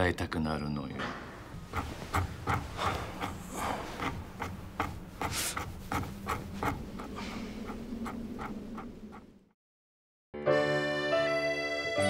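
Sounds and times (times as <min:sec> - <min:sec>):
rhythmic rasping strokes: 0:01.6 - 0:09.4.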